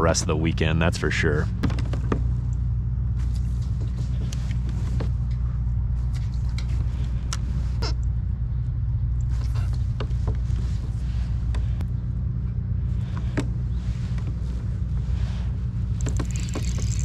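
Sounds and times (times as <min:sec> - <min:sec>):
steady low hum: 0:00.0 - 0:17.0
fishing reel clicks: 0:16.0 - 0:17.0.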